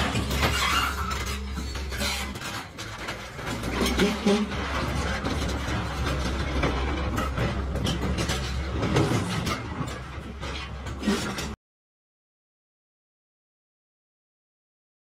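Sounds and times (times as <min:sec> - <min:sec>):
excavator diesel engine running: 0:00.0 - 0:11.6
steel tracks clanking: 0:00.0 - 0:11.6.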